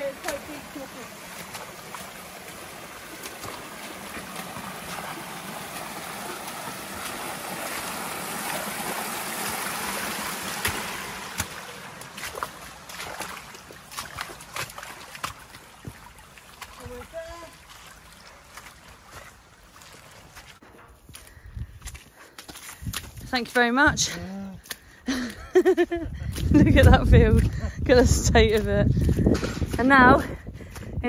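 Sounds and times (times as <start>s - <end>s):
stream running over cascade: 0.0s - 21.3s
boots splashing through water: 0.0s - 31.0s.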